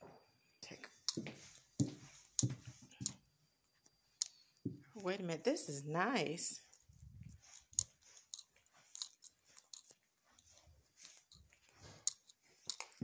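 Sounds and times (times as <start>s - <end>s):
soft footfalls: 1.1s - 3.2s.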